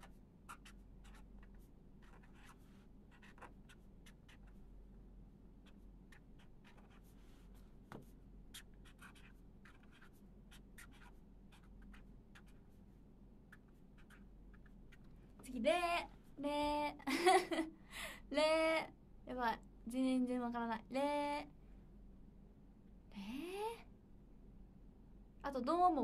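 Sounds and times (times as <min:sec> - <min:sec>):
pen scratching on paper: 0:00.0 - 0:04.7, 0:05.6 - 0:12.8, 0:13.5 - 0:15.1
low steady hum: 0:00.0 - 0:26.0.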